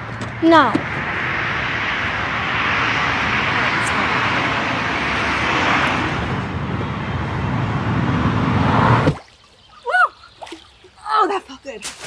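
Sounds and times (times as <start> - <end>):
vehicle noise roaring: 0.0 - 9.4.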